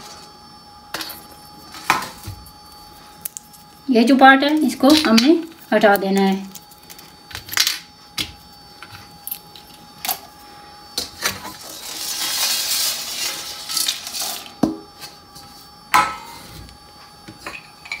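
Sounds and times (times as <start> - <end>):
spices pouring into frying pan: 11.6 - 14.5.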